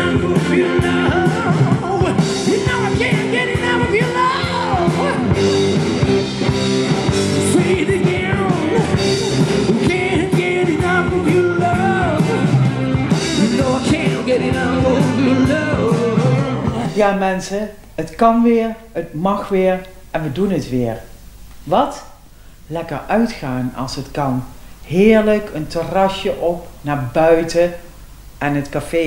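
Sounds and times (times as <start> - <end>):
man singing lead: 0.0 - 5.8, 7.1 - 17.6
electric guitar: 0.0 - 17.0
keyboards: 0.0 - 17.1
drums: 0.0 - 29.0.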